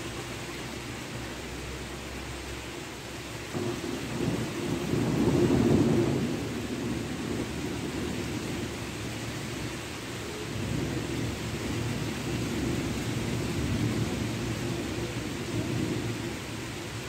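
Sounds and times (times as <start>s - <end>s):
rain hissing: 0.0s - 17.0s
thunder rumbling: 3.5s - 17.0s.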